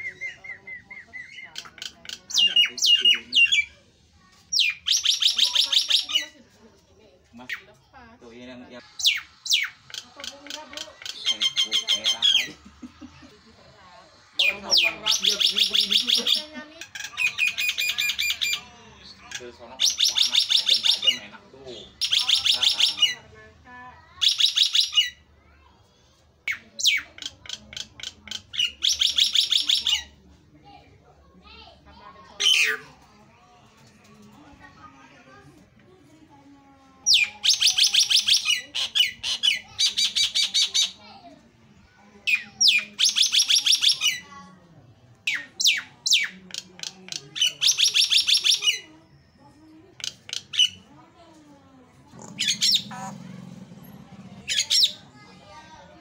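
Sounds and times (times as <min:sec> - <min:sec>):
myna whistling calls: 0:00.0 - 0:03.7
myna calling: 0:08.8 - 0:23.3, 0:52.0 - 0:55.2.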